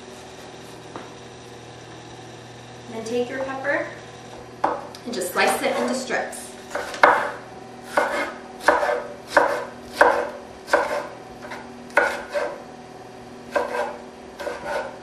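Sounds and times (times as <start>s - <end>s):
knife slicing pepper: 6.7s - 12.6s, 13.5s - 15.0s.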